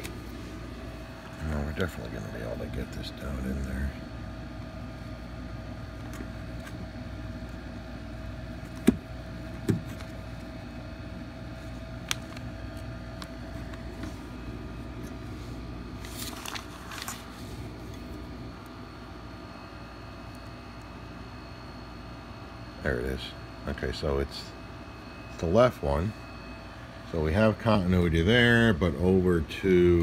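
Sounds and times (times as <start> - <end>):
steady low hum: 0.0 - 30.0
handling rustle: 11.6 - 18.2.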